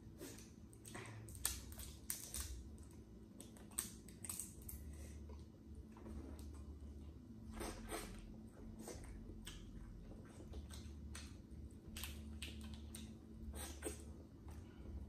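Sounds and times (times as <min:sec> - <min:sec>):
shells cracking and snapping: 0:01.3 - 0:04.8.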